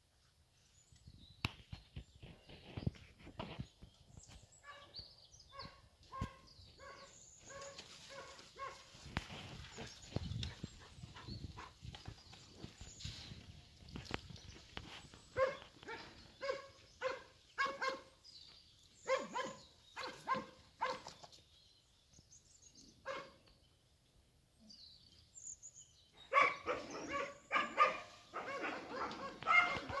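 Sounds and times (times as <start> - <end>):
dog barking: 5.5 - 8.9, 15.4 - 18.1, 19.0 - 21.1, 23.0 - 23.4, 26.3 - 30.0.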